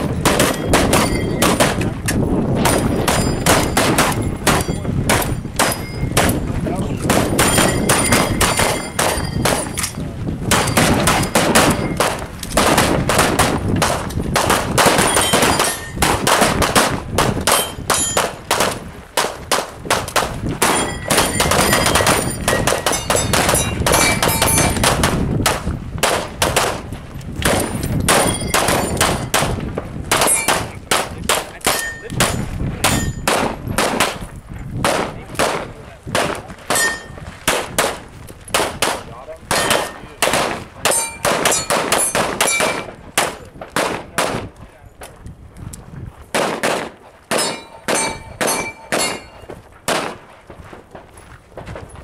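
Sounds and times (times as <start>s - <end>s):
rapid pistol gunfire: 0.0s - 9.8s, 10.4s - 44.5s, 46.3s - 50.3s
steel targets ringing: 0.3s - 1.8s, 2.7s - 6.5s, 7.3s - 10.0s, 14.9s - 16.0s, 17.5s - 18.4s, 20.6s - 24.8s, 28.1s - 29.3s, 30.2s - 30.6s, 31.6s - 33.3s, 36.7s - 37.2s, 39.5s - 40.2s, 40.9s - 42.9s, 47.3s - 49.5s.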